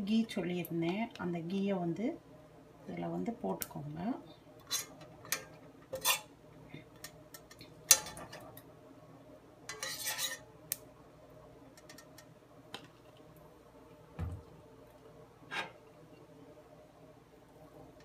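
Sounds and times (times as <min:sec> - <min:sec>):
spoon scraping a saucepan: 0:05.9 - 0:06.3, 0:09.7 - 0:10.5.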